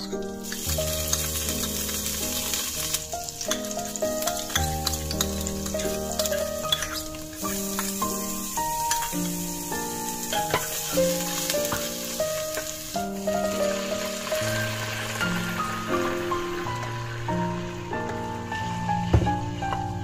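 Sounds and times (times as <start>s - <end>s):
garlic sizzling in hot oil: 0.0s - 20.0s
piano music: 0.0s - 20.0s.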